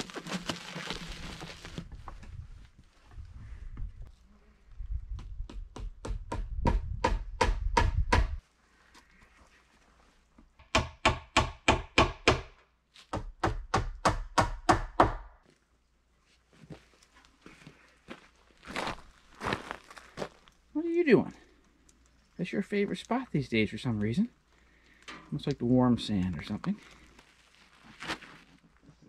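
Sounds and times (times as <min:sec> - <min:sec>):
hammer driving nails into wood: 0:13.2 - 0:15.3.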